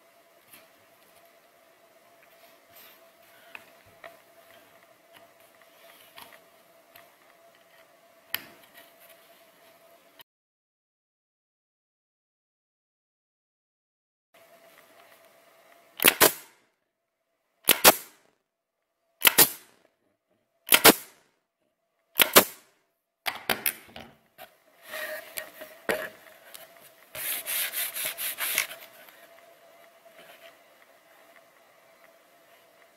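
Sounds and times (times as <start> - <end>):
air nailer firing: 16.0 - 16.6, 17.7 - 18.2, 19.2 - 19.8, 20.7 - 21.2, 22.2 - 22.7
rubbing and scraping: 26.6 - 29.0.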